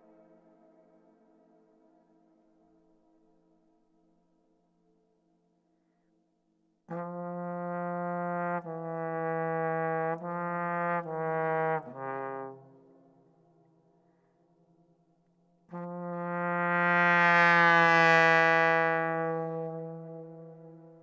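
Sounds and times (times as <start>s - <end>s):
solo trombone: 6.9s - 13.1s, 15.7s - 21.0s.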